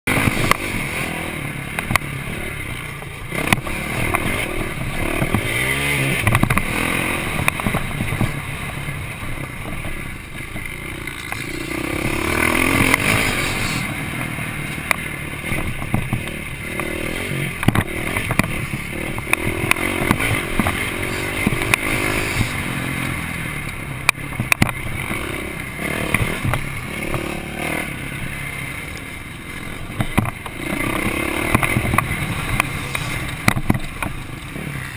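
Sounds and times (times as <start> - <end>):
motocross bike engine revving: 0.1 - 34.9
bike knocking over bumps: 29.9 - 34.2.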